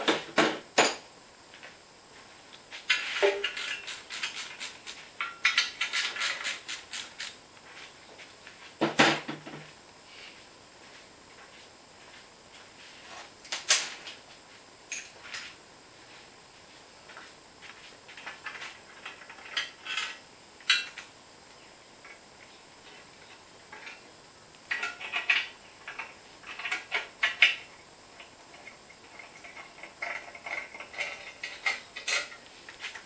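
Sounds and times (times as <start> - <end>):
hand ratchet clicking: 3.4 - 7.4.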